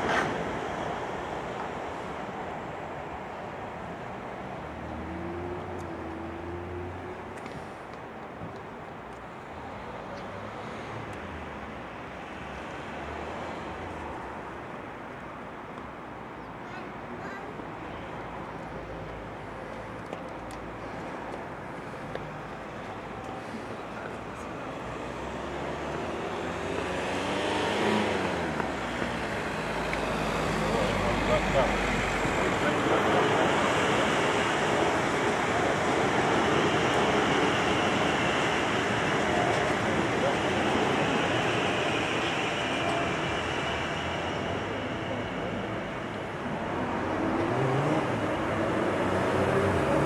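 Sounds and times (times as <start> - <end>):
train wheels rumbling on rail: 19.9 - 50.0
vehicle passing by: 24.9 - 35.0.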